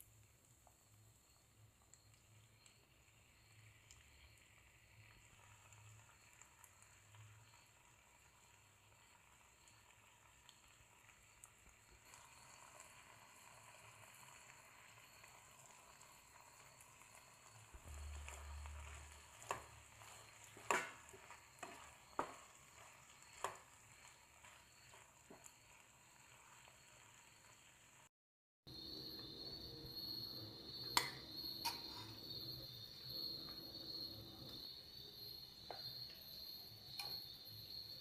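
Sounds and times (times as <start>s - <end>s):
faint sizzle: 0.0s - 28.1s, 28.7s - 38.0s
spatula tapping and scraping pan: 18.4s - 23.7s.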